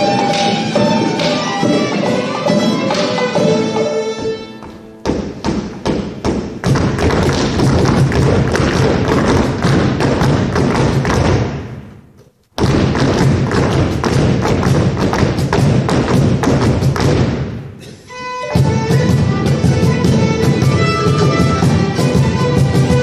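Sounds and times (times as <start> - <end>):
whistle melody: 0.0 - 1.8
fiddle melody: 0.0 - 5.4, 18.1 - 23.0
hand drums playing fast beats: 18.6 - 23.0.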